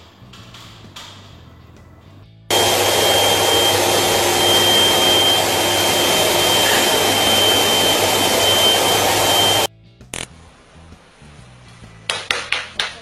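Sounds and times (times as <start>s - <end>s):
vacuum cleaner running: 2.5s - 9.7s.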